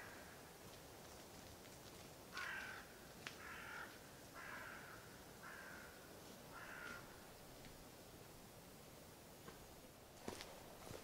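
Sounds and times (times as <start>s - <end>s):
crow calling: 0.0s - 0.4s, 2.3s - 7.2s.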